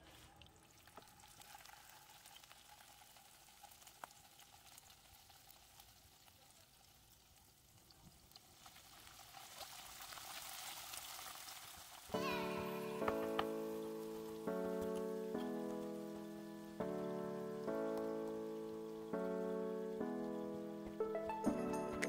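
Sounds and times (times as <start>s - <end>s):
tofu sizzling in a pan: 0.9s - 14.2s
soft tap: 13.0s - 13.5s.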